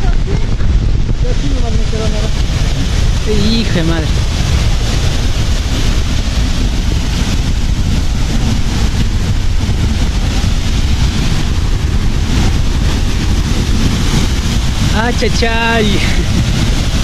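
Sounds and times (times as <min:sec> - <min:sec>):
waterfall rushing: 0:00.0 - 0:17.0
wind buffeting microphone: 0:00.0 - 0:17.0.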